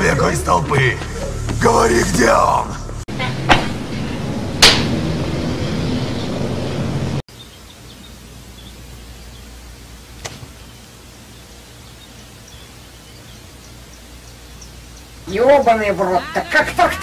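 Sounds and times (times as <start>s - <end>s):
loud rushing noise: 0.4s - 7.2s.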